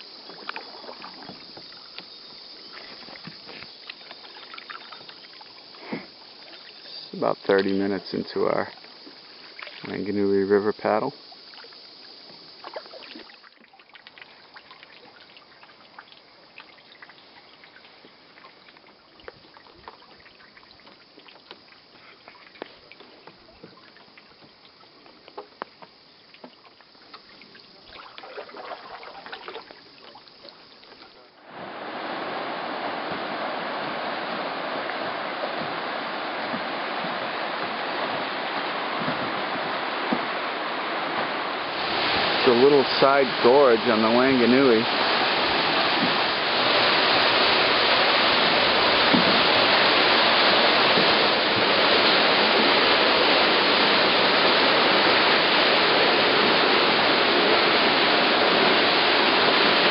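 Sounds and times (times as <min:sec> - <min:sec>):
paddle splashing in water: 0:00.0 - 0:59.9
river rapids rushing: 0:31.4 - 0:59.9.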